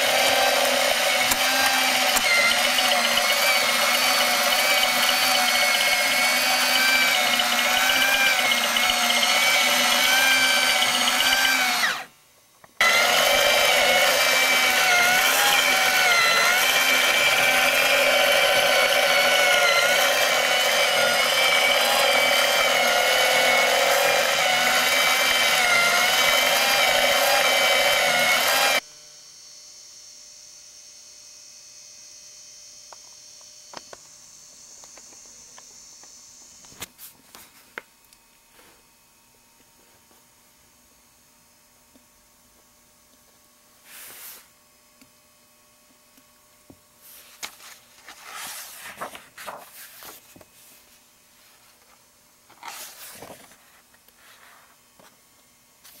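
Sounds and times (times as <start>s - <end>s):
small electric motor whirring: 0.0s - 12.1s, 12.8s - 36.8s.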